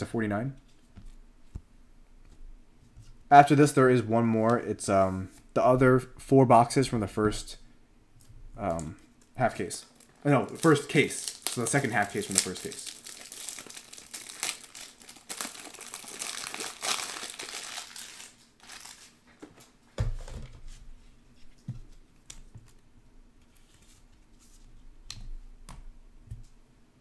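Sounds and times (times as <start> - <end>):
packaging crinkling: 9.8 - 19.2.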